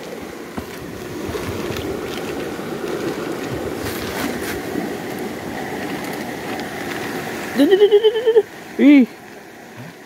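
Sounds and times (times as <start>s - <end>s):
flowing river water: 0.0s - 10.0s.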